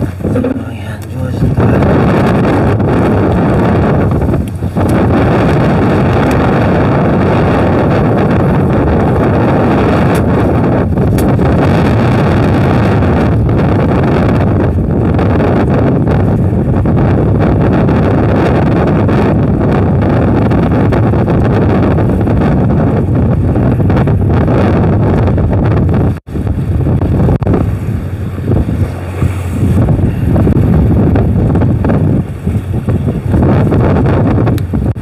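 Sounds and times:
boat noise: 0:00.0 - 0:35.0
sea: 0:00.0 - 0:35.0
wind buffeting microphone: 0:00.0 - 0:35.0.

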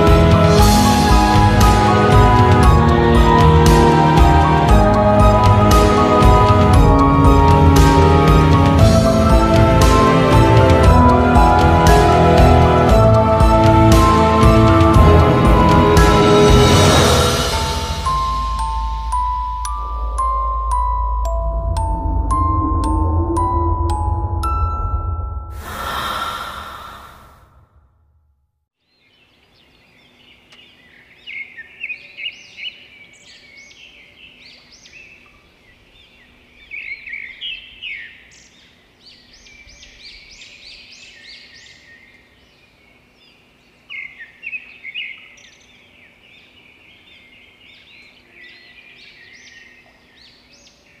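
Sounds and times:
music: 0:00.0 - 0:26.2
rush of noise: 0:19.8 - 0:27.8.

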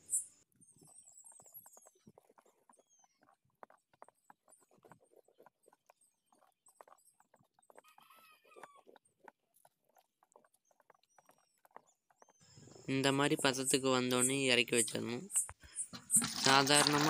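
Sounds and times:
faint high bird chirps: 0:07.8 - 0:08.8.

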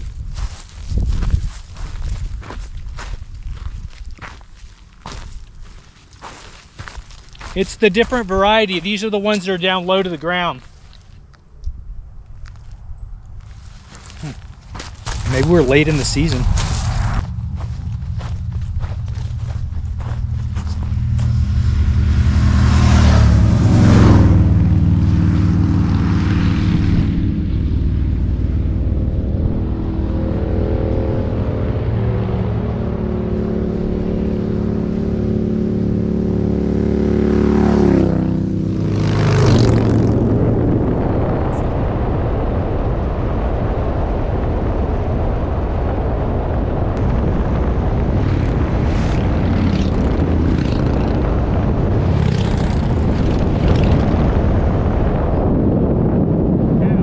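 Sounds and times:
road and wind noise: 0:00.0 - 0:57.0
motorcycles passing: 0:05.0 - 0:10.7, 0:13.4 - 0:41.8, 0:47.0 - 0:54.9.

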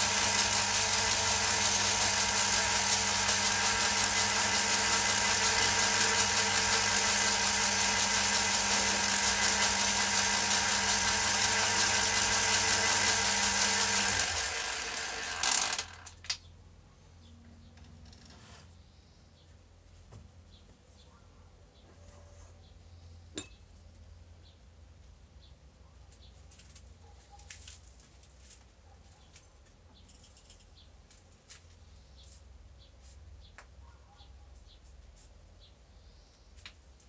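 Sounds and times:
lathe running with humming whine: 0:00.0 - 0:16.1.

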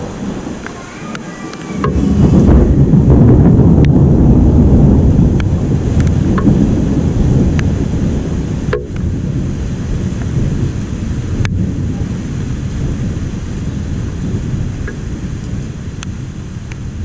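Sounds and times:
thunder rumbling: 0:00.0 - 0:17.0.

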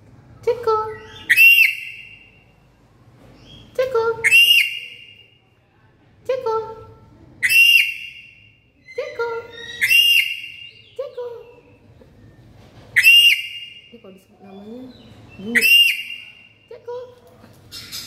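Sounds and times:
parrot shrill whistling calls: 0:00.9 - 0:02.4, 0:04.2 - 0:05.2, 0:07.4 - 0:11.0, 0:13.0 - 0:13.9, 0:15.5 - 0:16.5.

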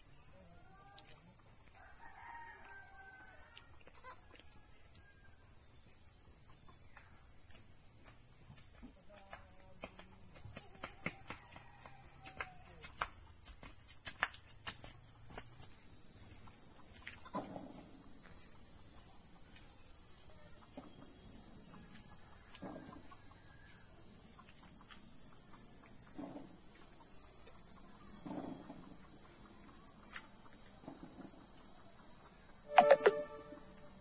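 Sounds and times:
insects chirring: 0:15.3 - 0:34.0.

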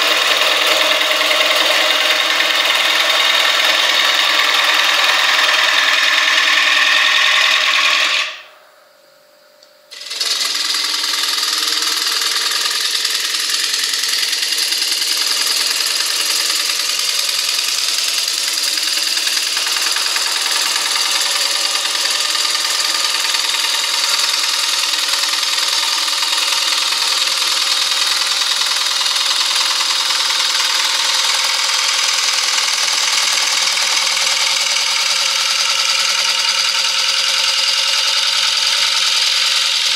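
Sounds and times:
gouge cutting spinning wood: 0:00.0 - 0:08.6, 0:09.9 - 0:39.9
wood lathe motor hum: 0:00.0 - 0:08.9, 0:09.9 - 0:39.9.

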